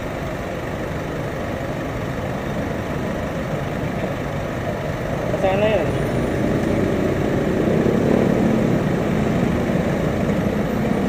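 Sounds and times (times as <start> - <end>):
roadside traffic noise: 0.0 - 11.0
vehicle engine running: 0.0 - 11.0.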